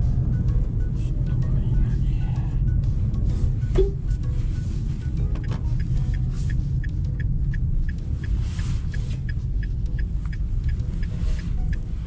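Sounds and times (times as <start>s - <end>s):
road and engine rumble: 0.0s - 12.0s
light regular ticking: 2.6s - 12.0s.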